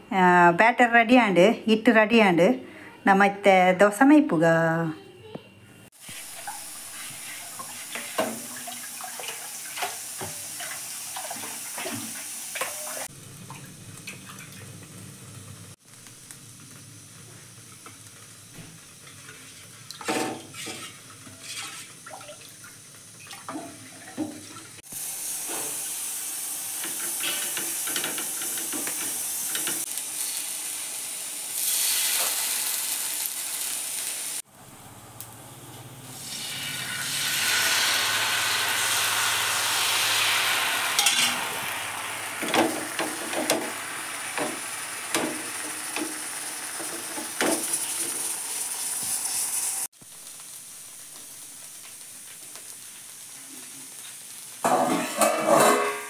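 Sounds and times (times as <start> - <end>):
steady hiss: 5.8 - 8.9, 24.8 - 54.7.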